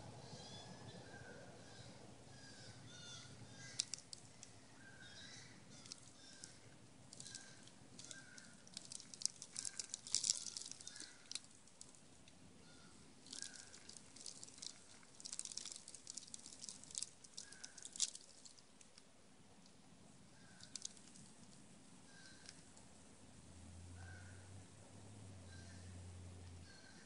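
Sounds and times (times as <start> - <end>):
squirrel crunching seed: 3.5 - 4.6, 5.7 - 12.4, 13.0 - 23.0.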